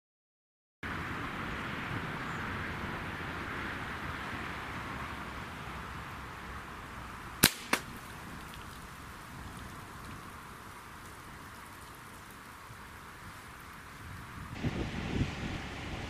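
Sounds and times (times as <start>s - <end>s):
outdoor background noise: 0.8s - 16.0s
air rifle shot: 7.4s - 8.0s.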